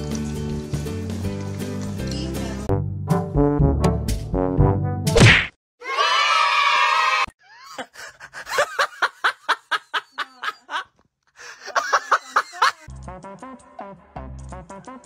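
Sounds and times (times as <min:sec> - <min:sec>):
loud held cry: 0:05.8 - 0:07.3
person laughing hard: 0:07.4 - 0:12.9.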